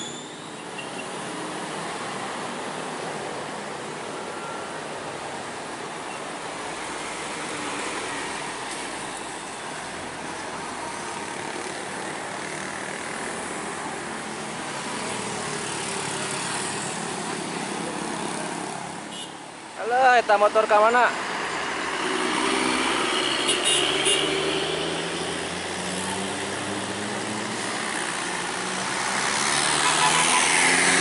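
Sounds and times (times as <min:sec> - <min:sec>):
road traffic passing: 0:00.0 - 0:31.0.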